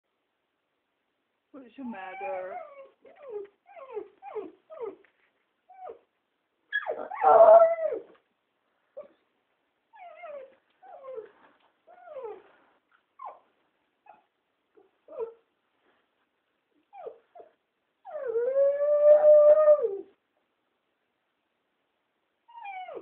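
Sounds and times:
puppy whimpering: 2.1 - 5.1, 5.7 - 6.0, 6.7 - 8.1, 9.9 - 12.5, 13.2 - 15.4, 16.9 - 20.1, 22.5 - 23.0
puppy howling: 6.8 - 8.1.

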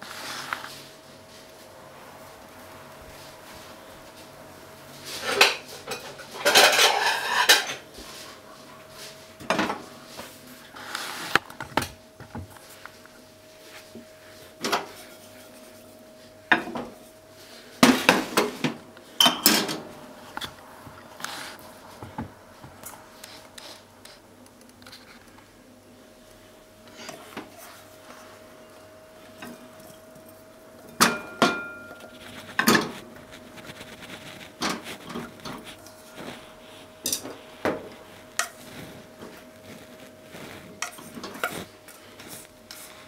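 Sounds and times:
faint steady hum: 0.0 - 43.0
kitchenware clattering: 5.2 - 7.9, 17.8 - 19.9, 30.9 - 33.0, 37.0 - 38.6.

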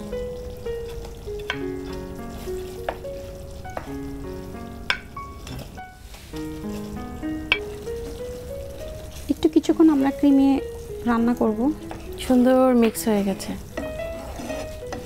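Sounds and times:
background music melody: 0.0 - 15.0
cream sauce sizzling in a pan: 0.0 - 15.0
spatula clicking and scraping: 13.1 - 15.0.

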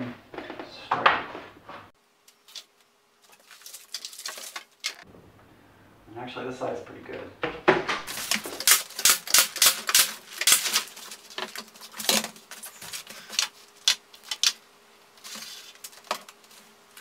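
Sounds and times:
nail gun firing into wood: 8.0 - 10.7.

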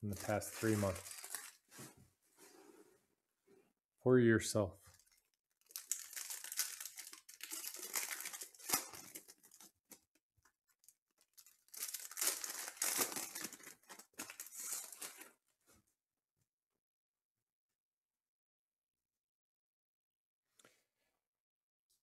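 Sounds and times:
plastic packaging crinkling: 0.0 - 1.7, 4.9 - 10.1, 10.8 - 15.3.

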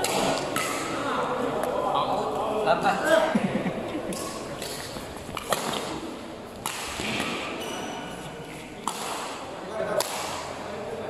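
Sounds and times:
badminton racket hitting shuttlecock: 0.0 - 0.9, 4.1 - 7.6, 8.9 - 9.4
voices chattering: 0.0 - 11.0.

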